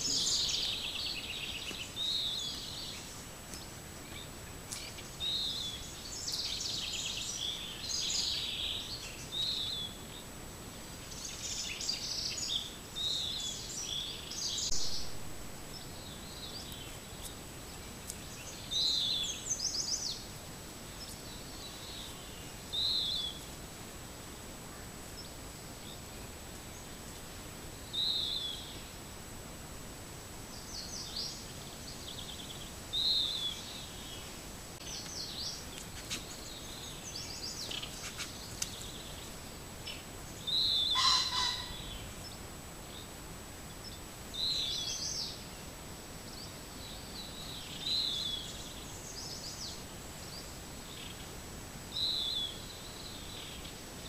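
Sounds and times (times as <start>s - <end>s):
songbirds singing: 0.0s - 54.0s
steady hiss: 0.0s - 54.0s.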